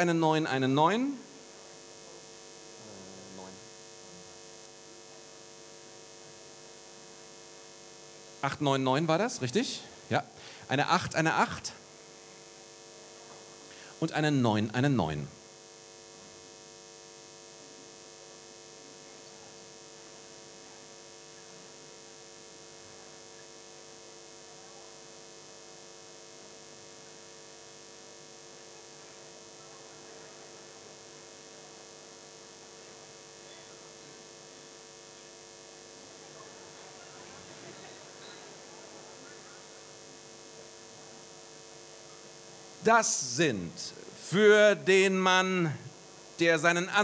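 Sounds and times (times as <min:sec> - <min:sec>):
electrical mains hum: 0:00.0 - 0:47.0
faint crowd murmur: 0:02.8 - 0:04.4, 0:24.3 - 0:25.2, 0:28.5 - 0:32.2, 0:32.8 - 0:44.4.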